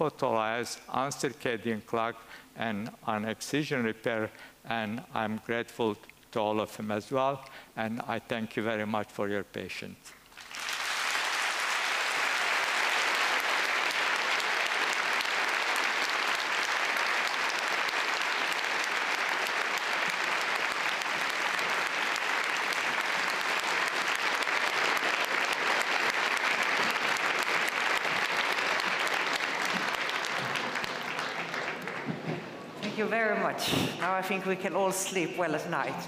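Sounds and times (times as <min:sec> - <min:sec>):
audience applauding: 0:10.3 - 0:32.6.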